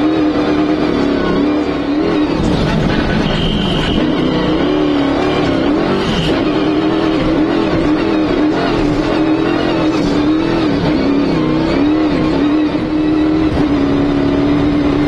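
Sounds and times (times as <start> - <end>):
buggy engine running hard: 0.0 - 15.0.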